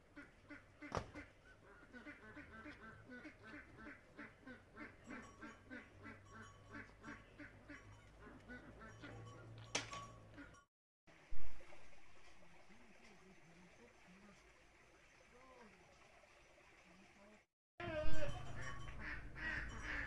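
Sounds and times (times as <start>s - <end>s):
fowl quacking calls: 0.1s - 9.3s, 18.5s - 20.0s.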